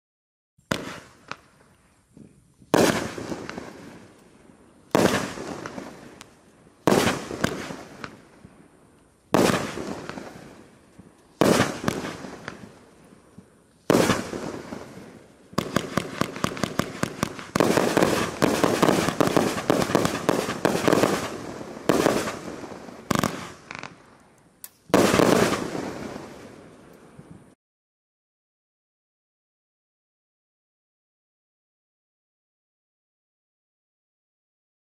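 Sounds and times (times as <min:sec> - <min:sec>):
firework cake shots: 0:15.6 - 0:24.0.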